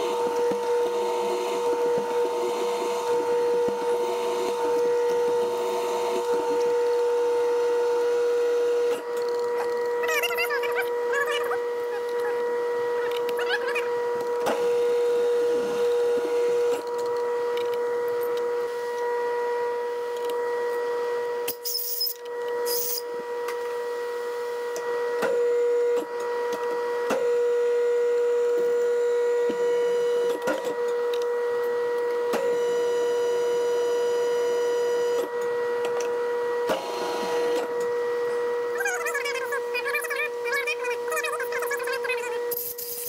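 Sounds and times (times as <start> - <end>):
metal lathe humming: 0.0 - 23.8.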